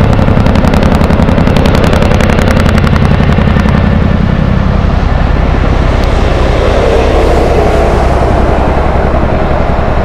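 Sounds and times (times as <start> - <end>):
helicopter blades chopping: 0.0 - 8.1
low steady rumble: 0.0 - 10.0.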